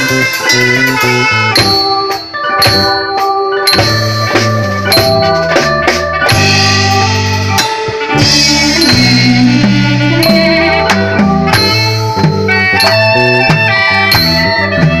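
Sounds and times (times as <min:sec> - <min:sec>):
drum strokes: 0:00.0 - 0:15.0
sustained melodic notes: 0:00.0 - 0:15.0
held low bass line: 0:04.0 - 0:15.0.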